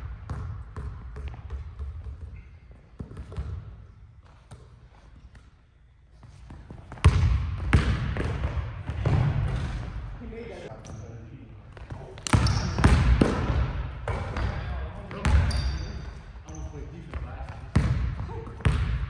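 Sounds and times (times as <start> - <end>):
basketball dribbling on hardwood: 0.2 - 3.6, 6.5 - 9.6.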